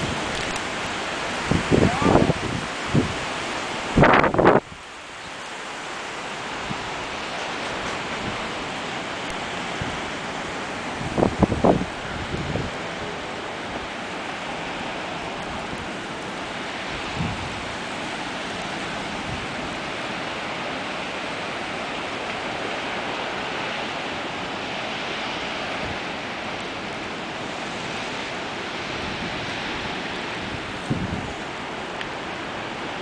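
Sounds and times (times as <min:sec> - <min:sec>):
strong wind rushing: 0:00.0 - 0:04.8, 0:06.5 - 0:14.0, 0:15.0 - 0:20.1, 0:27.4 - 0:31.7
wind buffeting microphone: 0:00.0 - 0:05.4, 0:06.3 - 0:33.0.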